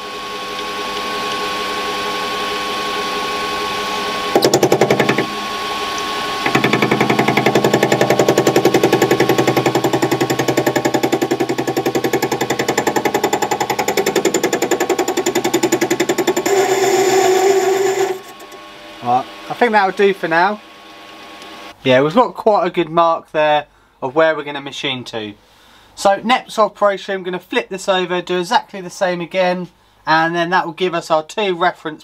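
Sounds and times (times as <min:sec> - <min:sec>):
lathe running: 0:01.6 - 0:18.7
parting blade cutting metal pulsing: 0:04.4 - 0:05.5, 0:06.4 - 0:18.6.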